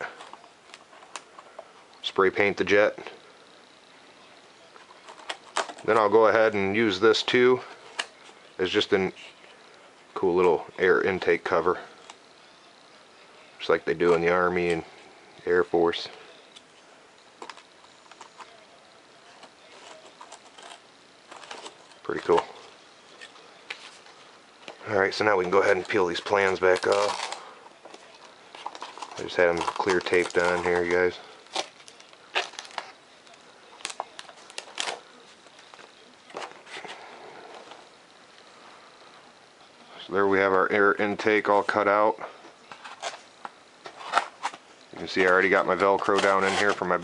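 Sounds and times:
paper and tape crinkling: 0.0 - 2.7, 4.2 - 9.6, 17.4 - 38.6, 42.5 - 47.0
foam board clicking and crinkling: 24.7 - 36.9.

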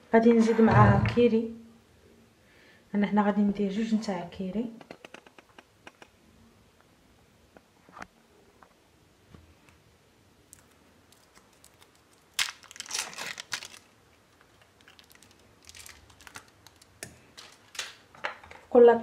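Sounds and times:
foil wrapper crinkling: 10.5 - 18.1.

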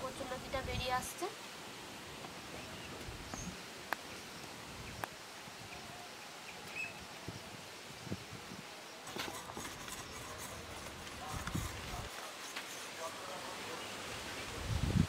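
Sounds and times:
steady faint hiss: 0.0 - 15.0
faint bird chirps: 5.6 - 7.0
stems scraped on a blade: 9.0 - 13.2.

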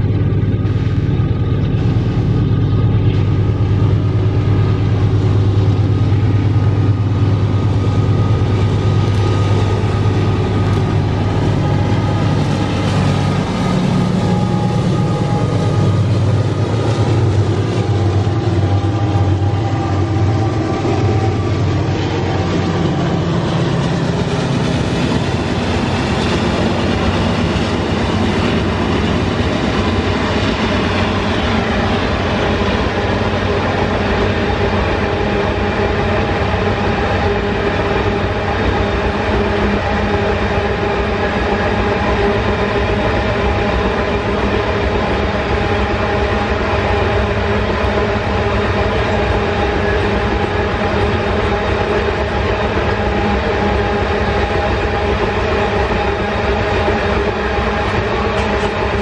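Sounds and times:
steady tones: 0.0 - 38.7
freight train wheels rumbling: 0.0 - 59.0.

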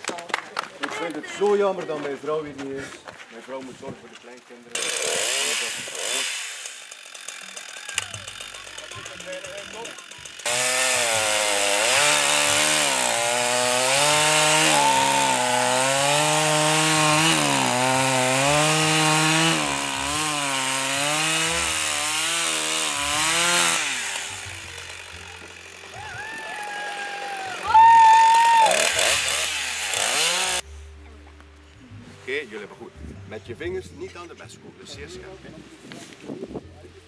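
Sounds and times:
chainsaw cutting through log: 4.7 - 30.6.

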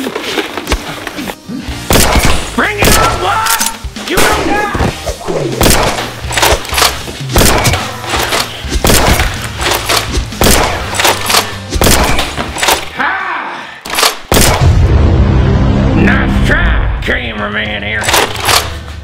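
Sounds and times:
bass-heavy music: 1.4 - 12.7, 14.6 - 19.0
people shouting: 2.8 - 4.9, 12.9 - 13.8
foam dart blasters firing: 4.2 - 6.6.

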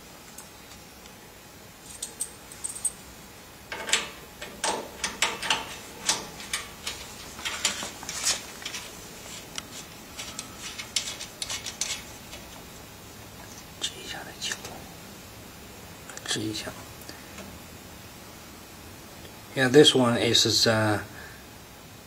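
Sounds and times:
metal connectors clicking and rattling: 3.7 - 12.7.

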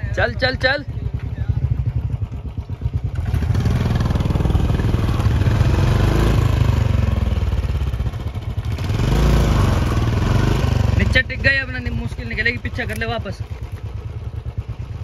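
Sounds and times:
motorcycle engine thumping and revving: 0.0 - 15.0.

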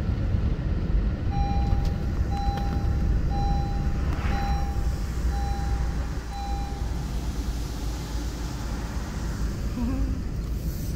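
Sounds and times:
car engine and road rumble: 0.0 - 10.9
electronic warning chime beeping: 1.3 - 7.0.

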